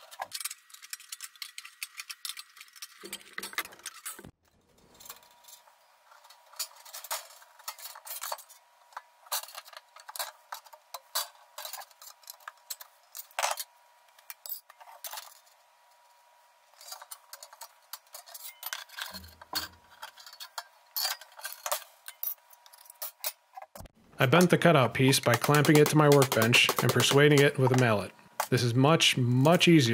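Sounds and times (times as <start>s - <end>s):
tin snips cutting sheet metal: 24.4s - 28.0s.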